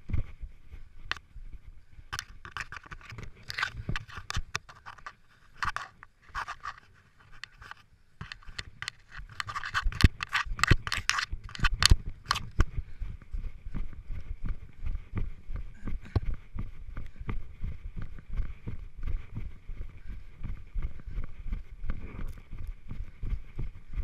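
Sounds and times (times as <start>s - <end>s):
camera scraping against grass and soil: 2.1s - 12.8s, 21.9s - 22.8s.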